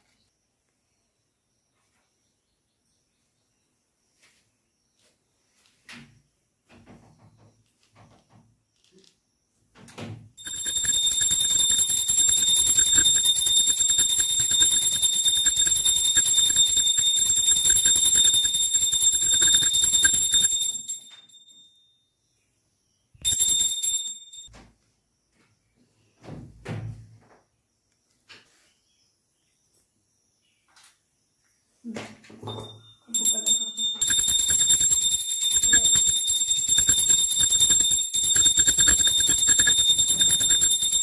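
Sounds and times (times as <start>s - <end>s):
hand bell ringing rapidly: 10.4s - 21.1s, 23.2s - 24.5s, 32.5s - 41.0s.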